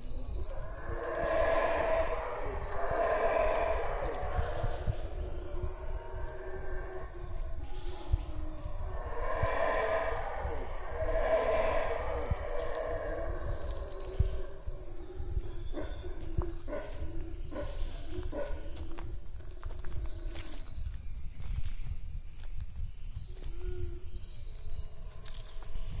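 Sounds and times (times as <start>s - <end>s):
low rumble: 0.0s - 18.2s
insects droning: 0.0s - 26.0s.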